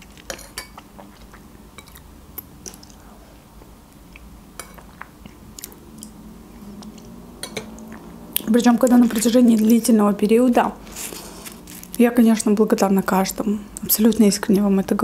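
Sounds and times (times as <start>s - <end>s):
chewing and mouth noises: 0.1s - 8.5s.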